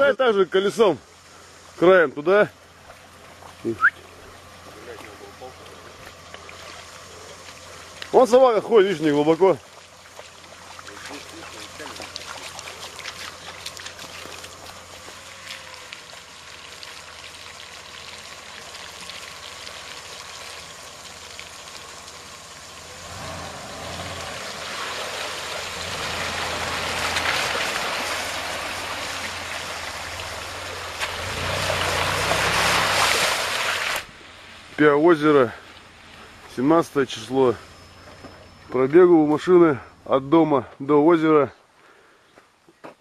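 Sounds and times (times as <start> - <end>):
engine running at low revs: 2.6 - 40.5
water sloshing and splashing: 2.8 - 8.1, 9.0 - 22.2, 23.8 - 34.7.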